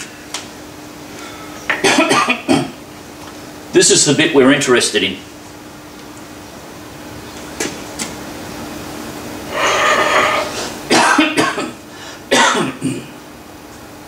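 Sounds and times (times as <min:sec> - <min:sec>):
steady low hum: 0:00.0 - 0:14.0
man coughing: 0:01.7 - 0:02.8, 0:10.2 - 0:13.2.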